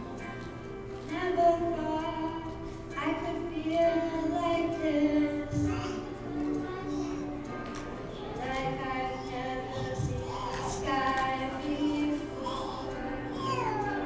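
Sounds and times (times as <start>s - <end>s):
recorded backing music: 0.0s - 14.0s
child singing: 3.2s - 14.0s.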